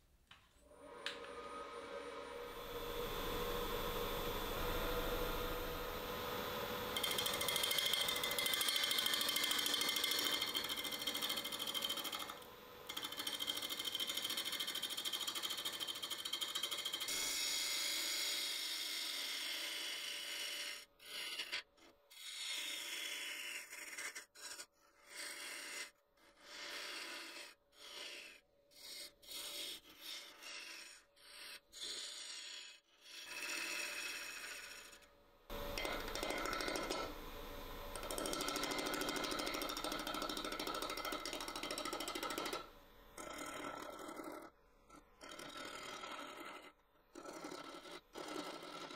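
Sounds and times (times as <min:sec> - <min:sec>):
wood lathe hum: 0:00.6 - 0:17.6, 0:33.3 - 0:46.7
gouge scraping wood: 0:06.9 - 0:15.2, 0:18.9 - 0:42.6, 0:43.2 - 0:48.9.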